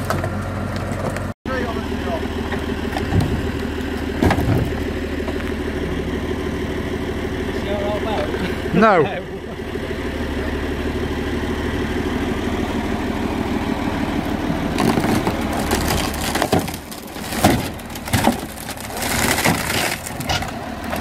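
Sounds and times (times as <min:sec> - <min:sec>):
tractor diesel engine running: 0:00.0 - 0:21.0
boat hull cracking and splintering: 0:14.8 - 0:21.0.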